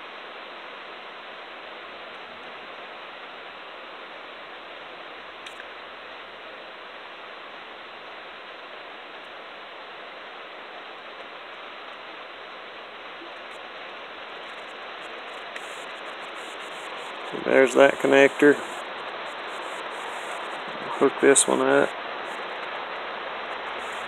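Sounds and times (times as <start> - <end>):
steady rain hiss: 0.0 - 24.0.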